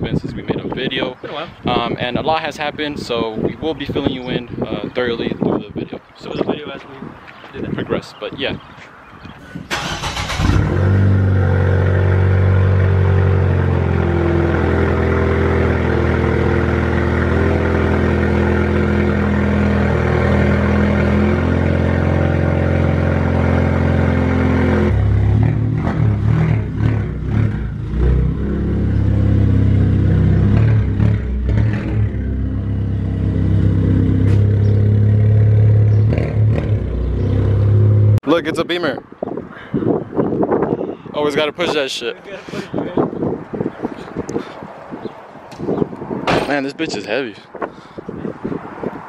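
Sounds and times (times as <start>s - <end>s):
car engine idling and revving: 9.8s - 38.2s.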